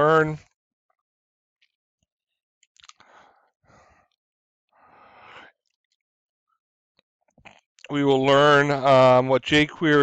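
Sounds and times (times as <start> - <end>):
soft breaths into a microphone: 3.0 - 4.2, 4.8 - 5.6.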